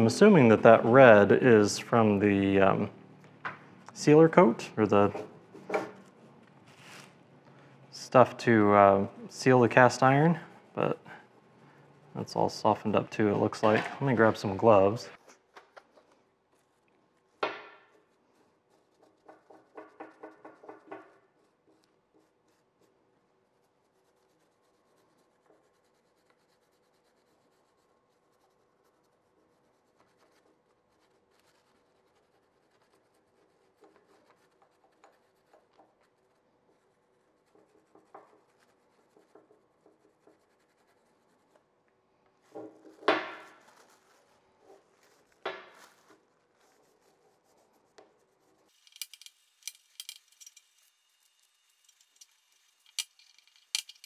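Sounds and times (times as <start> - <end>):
hand brush scrubbing metal: 12.2 - 15.0.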